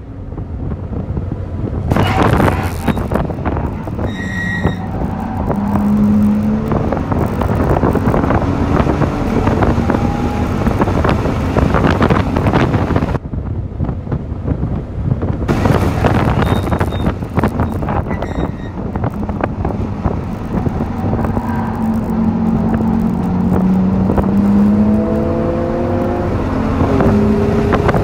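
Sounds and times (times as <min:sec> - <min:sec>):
wind and road noise: 0:00.0 - 0:28.0
car engine accelerating: 0:00.3 - 0:13.2, 0:15.5 - 0:28.0
short electronic beep: 0:04.0 - 0:04.9, 0:16.4 - 0:18.8.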